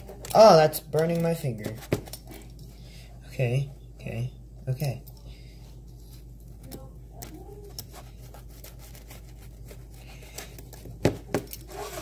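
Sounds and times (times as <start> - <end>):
pizza cutter scraping: 11.3 - 12.0.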